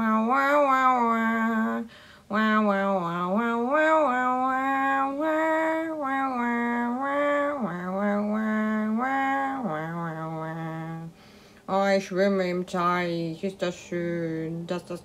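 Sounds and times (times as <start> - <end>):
person singing wordless tune: 0.0 - 15.0.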